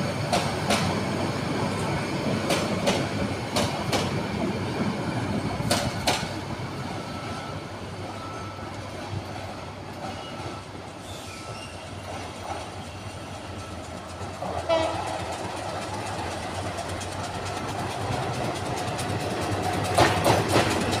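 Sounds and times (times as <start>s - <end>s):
diesel locomotive engine rumble: 0.0s - 21.0s
wheels clacking over rail joints: 2.2s - 4.9s, 5.5s - 6.4s, 11.5s - 21.0s
locomotive horn blast: 14.7s - 15.1s.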